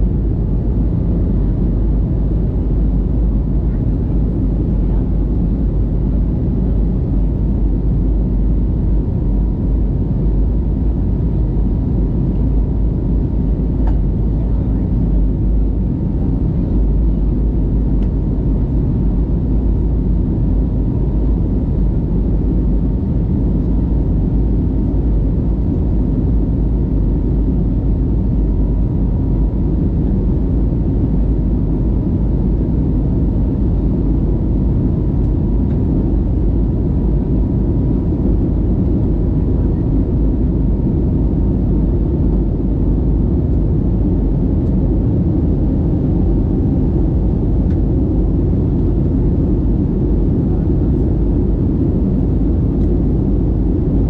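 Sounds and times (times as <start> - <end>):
jet engine cabin rumble: 0.0 - 54.0.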